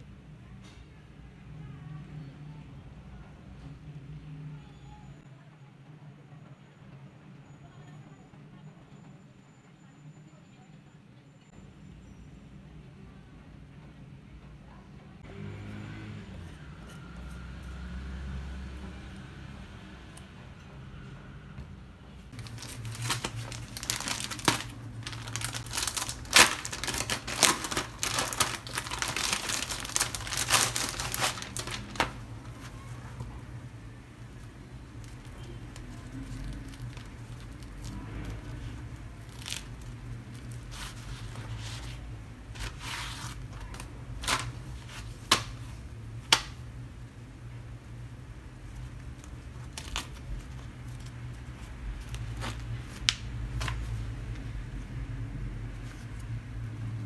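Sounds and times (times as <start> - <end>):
plastic packet crinkling: 22.4 - 33.2, 34.9 - 41.2
papery rustling: 22.4 - 33.6, 34.2 - 45.8, 48.6 - 54.4.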